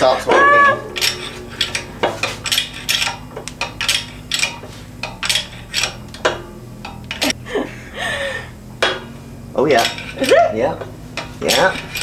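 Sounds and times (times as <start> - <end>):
steady low hum: 0.0 - 12.0
sharp metallic clicks and cracks: 0.8 - 7.4, 11.2 - 12.0.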